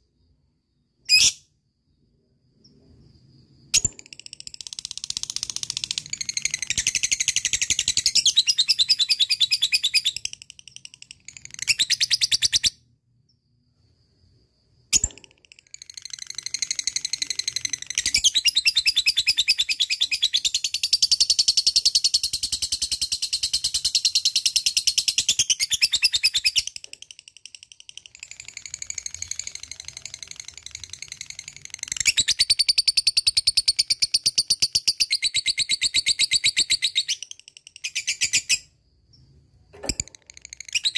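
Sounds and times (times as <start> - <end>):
sharp click: 14.9 - 15.6, 39.7 - 40.6.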